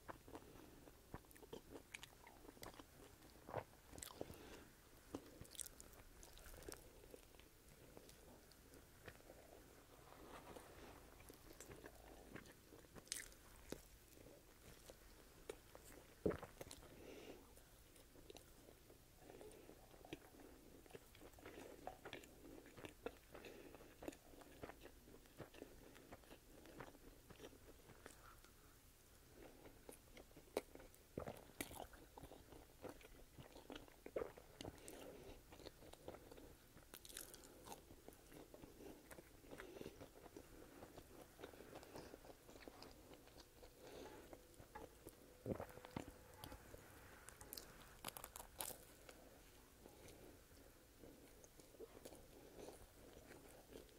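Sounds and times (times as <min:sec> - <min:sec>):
chewing crunchy fries: 0:00.0 - 0:53.9
biting sandwich: 0:32.8 - 0:49.3.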